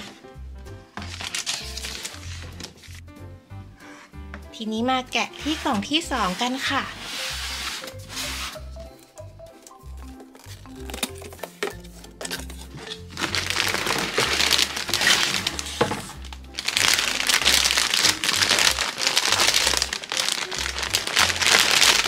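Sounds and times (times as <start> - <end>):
background music: 0.0 - 22.0
plastic packaging crinkling: 1.0 - 3.0, 10.0 - 22.0.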